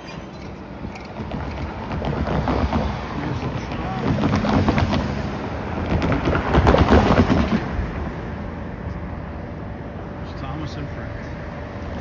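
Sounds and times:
tyres clattering over rails: 0.0s - 7.9s.

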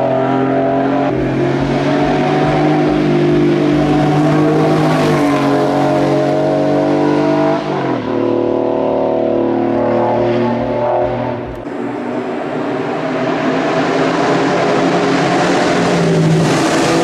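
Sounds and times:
race car engine accelerating: 0.0s - 17.0s.

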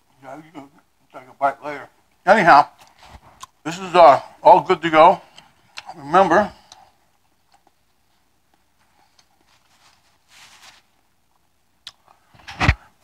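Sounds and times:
faint rustle: 7.6s - 11.1s.

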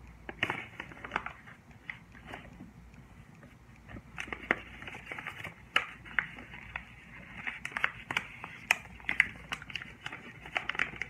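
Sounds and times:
paper crinkling as folded: 4.2s - 11.0s.

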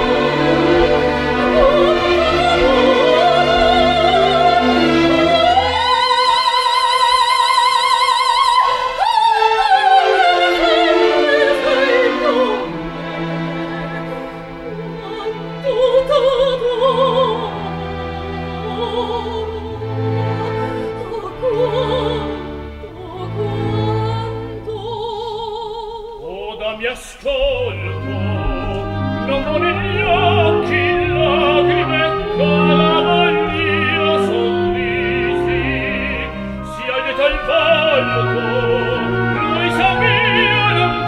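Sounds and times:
orchestra playing: 0.0s - 25.2s, 26.7s - 41.0s
opera singing: 0.0s - 41.0s.

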